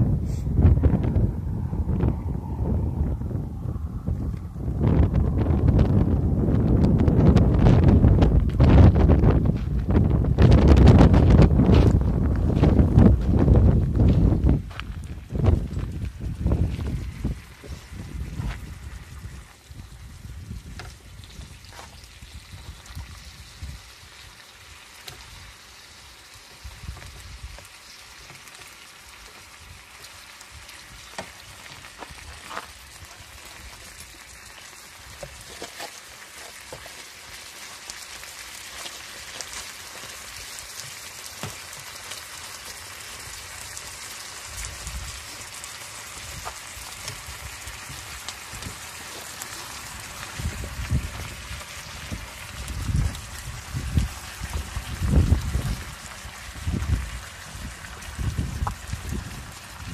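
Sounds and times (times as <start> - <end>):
wind rumbling on microphone: 0.0 - 28.6, 39.0 - 59.9
meat sizzling in a frying pan: 15.9 - 59.9.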